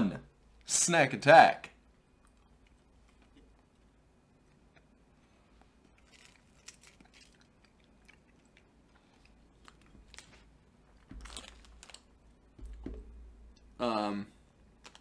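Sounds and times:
person chewing chocolate: 2.0s - 12.1s
foil wrapper crinkling: 9.6s - 12.2s, 14.8s - 15.0s.

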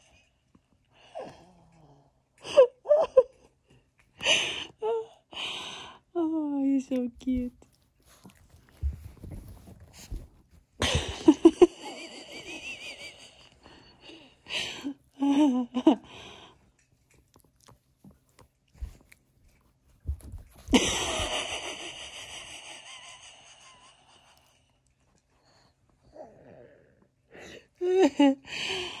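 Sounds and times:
puppy wheezing and snorting: 12.2s - 15.2s.

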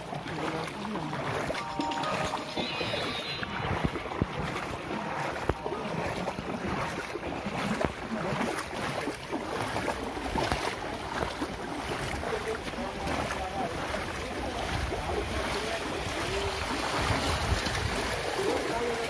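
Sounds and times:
water sloshing and splashing: 0.0s - 19.0s
wind noise on microphone: 16.3s - 18.4s.

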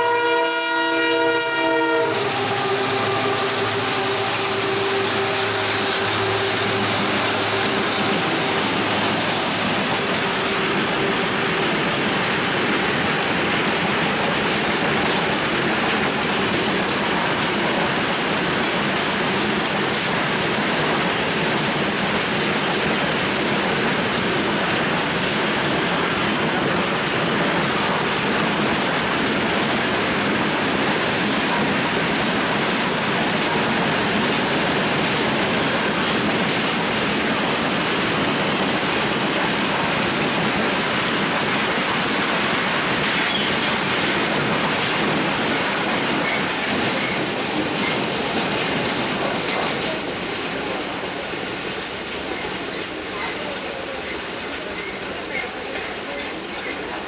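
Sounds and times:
high wheel squeal: 0.0s - 32.1s, 33.2s - 57.0s
locomotive engine drone: 2.1s - 15.2s
wagon wheels rumbling on rails: 4.6s - 57.0s.

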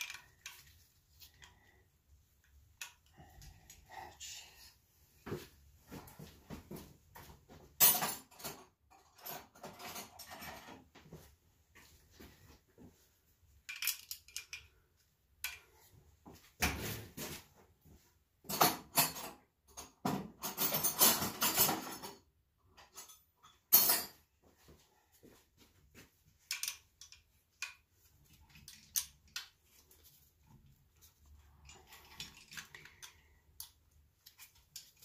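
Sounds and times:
metal tools clinking and clattering: 7.8s - 10.8s, 18.5s - 24.3s, 26.4s - 27.7s, 31.2s - 35.0s.

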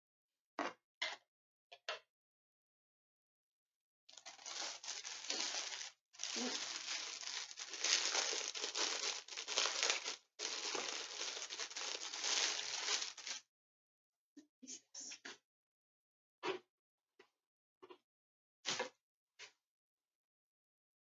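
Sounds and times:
plastic packaging crinkling: 4.1s - 13.4s.

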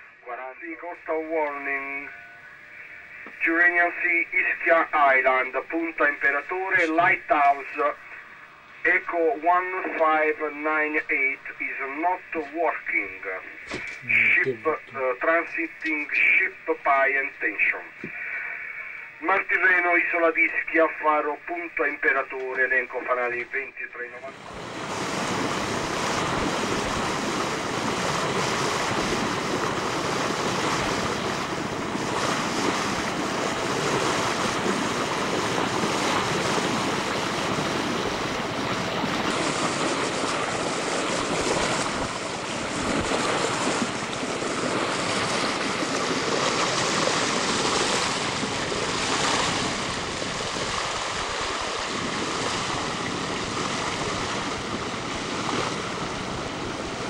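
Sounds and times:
water splashing along hull: 0.0s - 57.0s
wind buffeting microphone: 24.4s - 57.0s.

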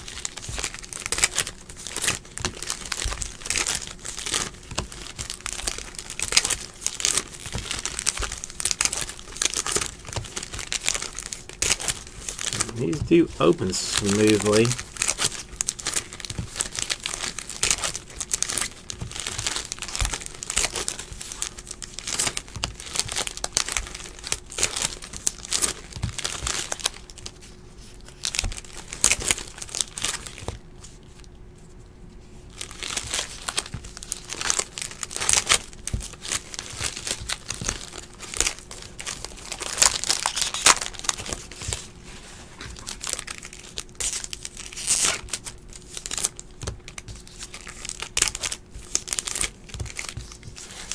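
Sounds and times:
foil wrappers crinkling and tearing: 0.0s - 31.3s, 32.5s - 50.9s
cards being handled: 11.6s - 15.3s.

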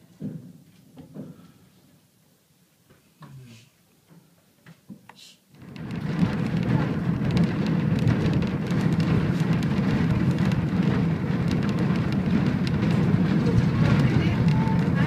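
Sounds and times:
tram rumbling on rails: 5.6s - 15.0s
wind buffeting microphone: 5.6s - 15.0s.

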